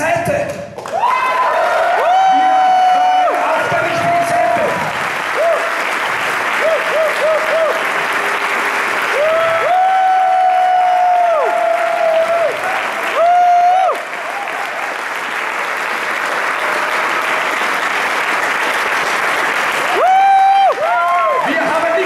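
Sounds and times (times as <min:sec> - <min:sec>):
audience applauding: 0:00.8 - 0:22.0
long pitched cheers: 0:00.9 - 0:08.0, 0:09.1 - 0:15.1, 0:16.4 - 0:17.7, 0:19.8 - 0:22.0.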